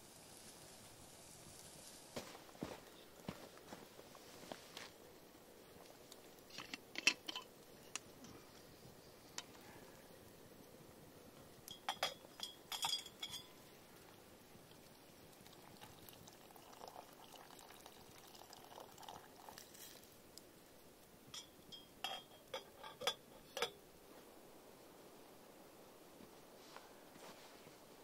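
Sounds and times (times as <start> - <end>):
water pouring into pot: 14.7 - 20.0
metal pot lid clinking: 21.4 - 23.8.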